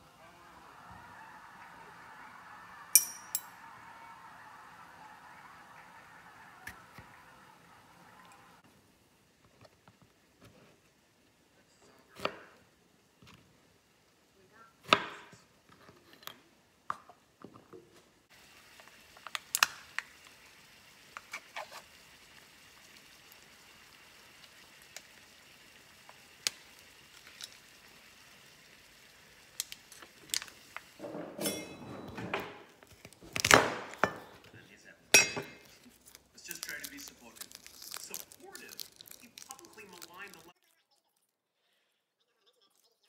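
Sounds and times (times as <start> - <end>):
faint steady hiss: 7.9 - 31.0.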